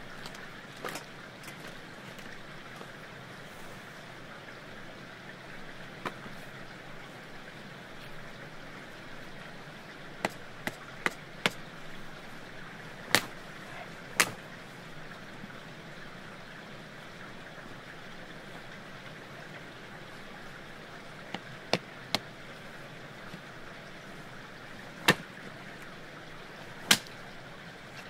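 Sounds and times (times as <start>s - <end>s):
streaming water hiss: 0.0s - 28.0s
hatchet striking wood: 26.9s - 27.1s.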